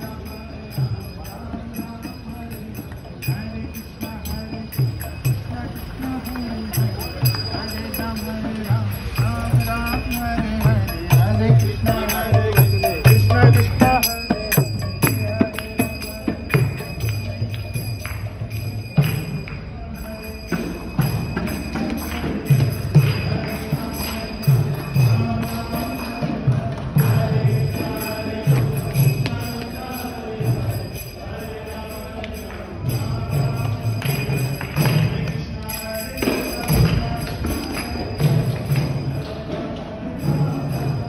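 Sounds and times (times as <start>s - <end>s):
hand cymbals jingling: 0.0s - 41.0s.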